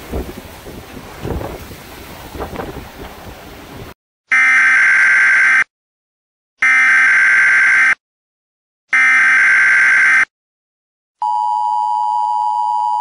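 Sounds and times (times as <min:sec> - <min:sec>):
wind and rain on microphone: 0:00.0 - 0:04.0.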